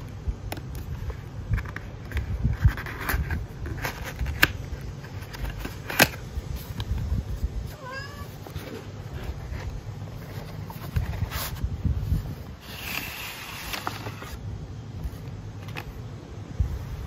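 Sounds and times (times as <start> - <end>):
cardboard box rustling and scraping: 1.0 - 14.4.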